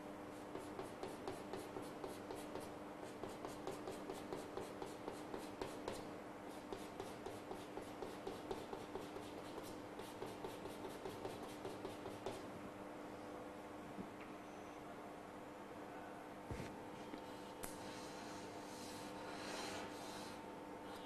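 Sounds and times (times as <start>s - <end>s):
faint hum: 0.0s - 21.0s
chalk tapping and scraping on blackboard: 0.4s - 12.5s.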